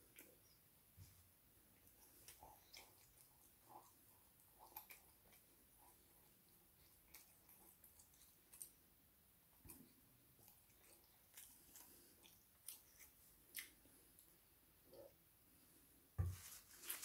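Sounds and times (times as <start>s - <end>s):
chewing crunchy food: 1.8s - 8.9s, 9.5s - 15.1s.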